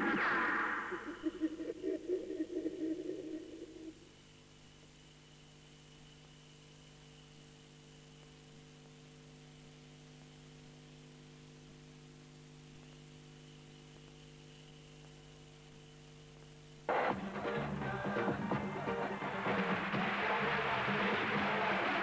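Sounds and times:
electrical mains hum: 0.0s - 22.0s
faint buzz: 0.0s - 22.0s
loud music: 16.9s - 22.0s.

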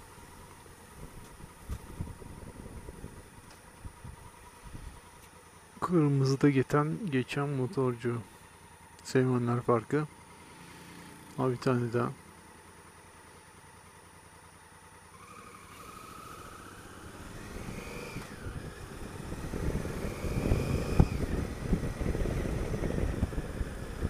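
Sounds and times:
motorcycle engine accelerating: 0.0s - 5.9s, 10.0s - 24.0s
wind buffeting microphone: 1.0s - 5.0s, 17.4s - 24.0s.

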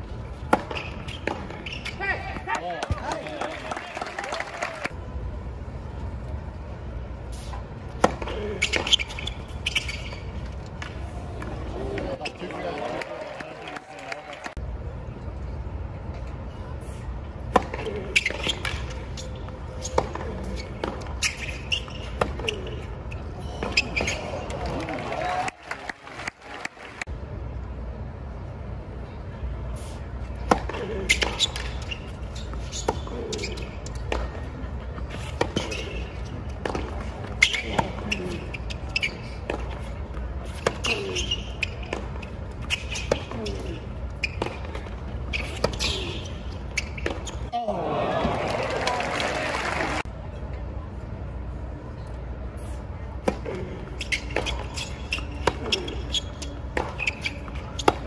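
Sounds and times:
tennis ball hit by rackets: 0.5s - 1.7s, 36.6s - 38.0s
crowd murmur: 47.5s - 54.0s.

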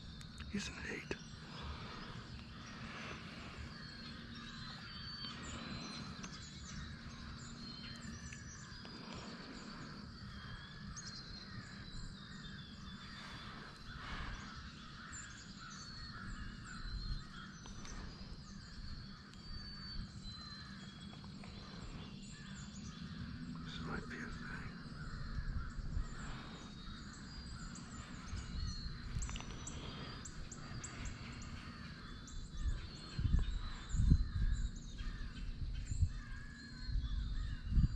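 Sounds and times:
small birds chirping: 0.0s - 37.9s
wind rumble on microphone: 1.2s - 37.9s.

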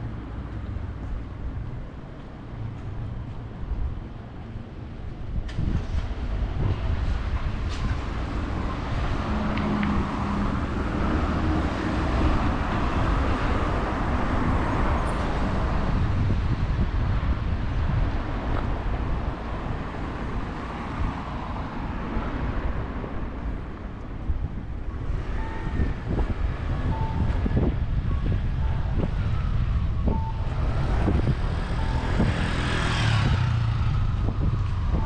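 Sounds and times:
cars driving past: 30.0s - 35.0s.

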